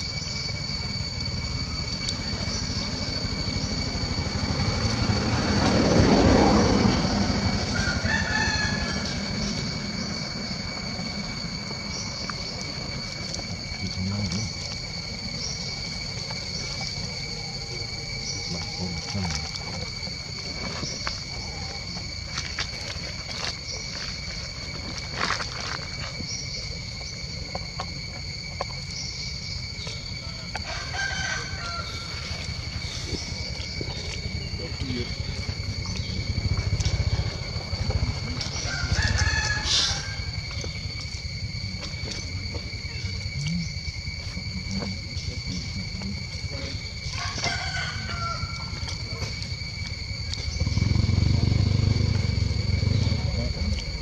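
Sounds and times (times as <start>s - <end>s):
insects droning: 0.0s - 54.0s
rooster crowing: 6.6s - 10.7s, 30.2s - 32.8s, 38.4s - 40.8s, 46.9s - 49.1s
low microphone rumble: 31.9s - 47.2s.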